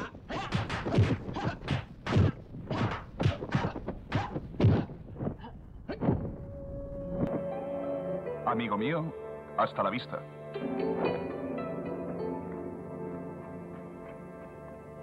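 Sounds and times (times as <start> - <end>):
punch and kick whacks: 0.3 - 4.9.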